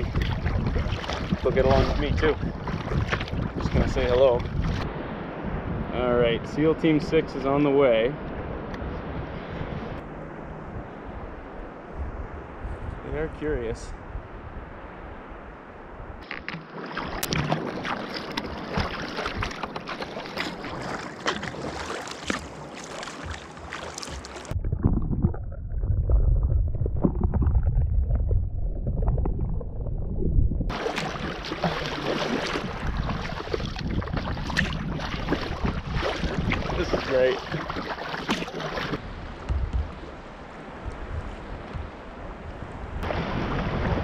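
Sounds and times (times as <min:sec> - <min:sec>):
water slapping the hull: 0:00.0 - 0:05.0, 0:16.2 - 0:44.0
paddle splashes: 0:00.0 - 0:05.2, 0:16.2 - 0:24.6, 0:30.7 - 0:44.0.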